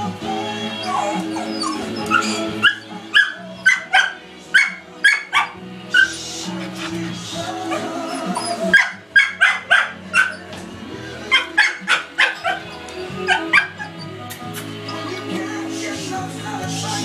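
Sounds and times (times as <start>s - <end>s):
music on a radio: 0.0s - 17.0s
dog barking: 0.9s - 7.1s, 7.7s - 10.5s, 11.2s - 14.1s.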